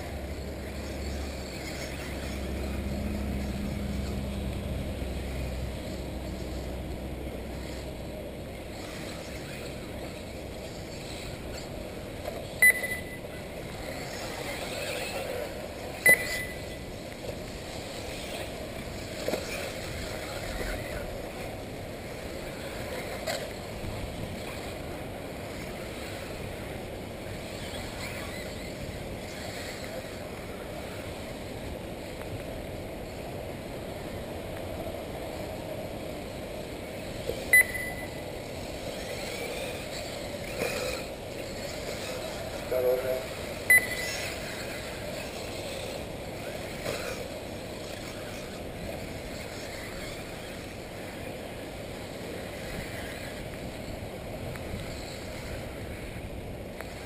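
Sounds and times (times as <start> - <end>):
race track background noise: 0.0 - 57.0
short loud electronic beeps: 12.6 - 13.3, 16.0 - 16.8, 37.5 - 38.3, 43.7 - 44.2.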